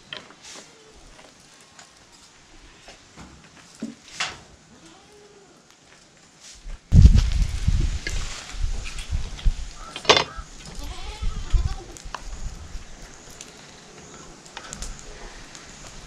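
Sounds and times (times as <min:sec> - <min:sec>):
goat bleating: 0:10.7 - 0:12.0.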